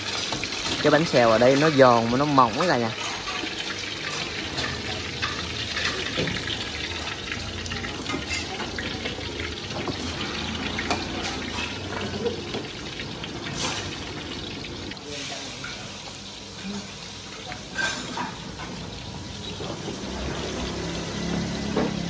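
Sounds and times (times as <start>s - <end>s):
food sizzling in deep oil: 0.0s - 22.0s.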